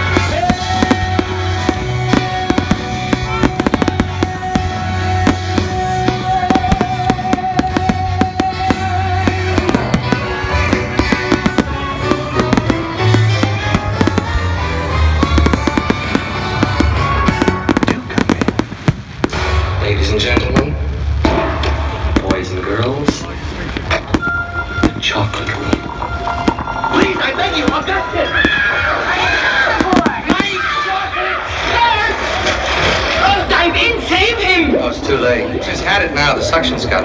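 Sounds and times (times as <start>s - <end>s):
music with long held note: 0.0s - 19.8s
fireworks bangs and crackling: 0.0s - 37.0s.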